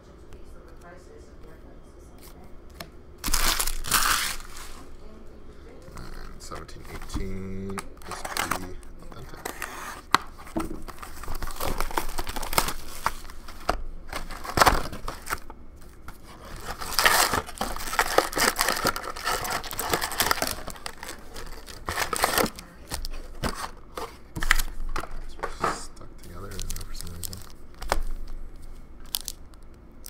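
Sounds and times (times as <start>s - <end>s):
foil packs rustling: 3.2s - 4.8s, 5.9s - 28.4s
shrink wrap crinkling and tearing: 3.2s - 4.8s, 5.9s - 23.7s, 26.2s - 28.4s, 29.0s - 29.8s.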